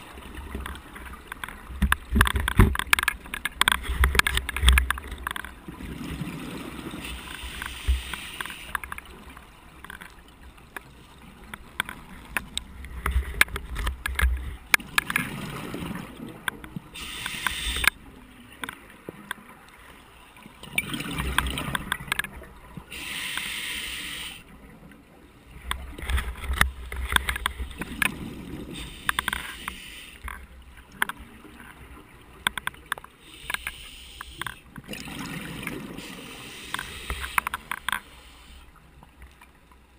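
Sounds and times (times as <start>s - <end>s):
exhaled bubbles rumbling underwater: 0.0s - 7.4s, 14.3s - 18.6s, 20.4s - 23.0s, 34.7s - 37.1s
regulator inhale hiss: 7.1s - 8.8s, 17.0s - 17.9s, 22.9s - 24.4s, 28.8s - 30.3s, 33.2s - 34.6s, 36.0s - 38.7s.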